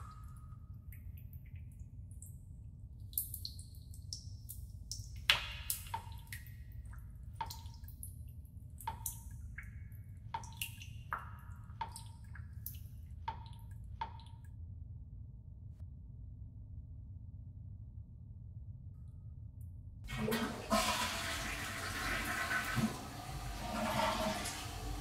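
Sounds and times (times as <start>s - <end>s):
water drops dripping into sink: 0.0s - 2.4s, 3.0s - 8.2s, 8.8s - 14.5s
low steady hum: 0.0s - 25.0s.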